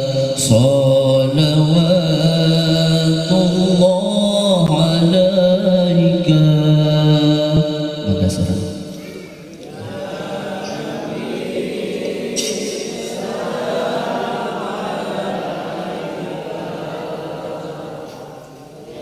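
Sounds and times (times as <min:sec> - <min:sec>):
man chanting melodically: 0:00.0 - 0:09.4.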